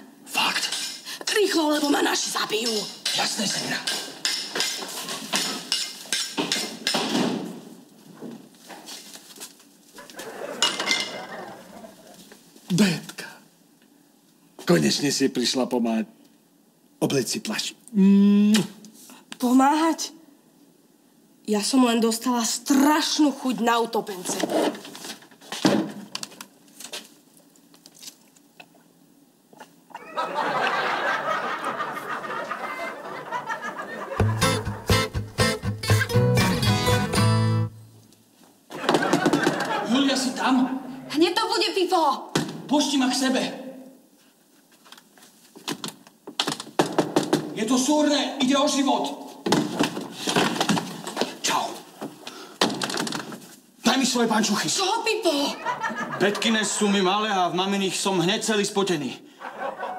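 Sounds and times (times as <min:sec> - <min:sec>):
metal utensils clattering: 0:02.6 - 0:07.0, 0:10.6 - 0:11.4
studio audience laughter: 0:10.0 - 0:12.2, 0:30.0 - 0:34.9, 0:38.7 - 0:41.0, 0:55.6 - 0:56.4, 0:59.4 - 0:59.9.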